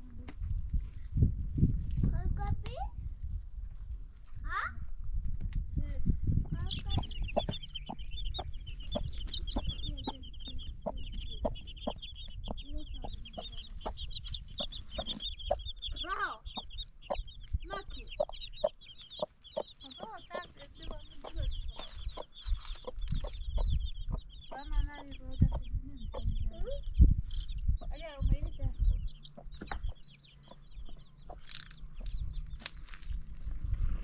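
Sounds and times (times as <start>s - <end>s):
chicks peeping: 5.8s - 34.0s
hen clucking: 6.5s - 32.8s.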